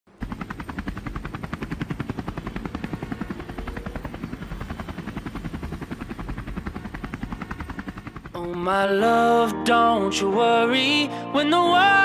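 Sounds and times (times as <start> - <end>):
helicopter rotor chopping: 0.1 - 9.4.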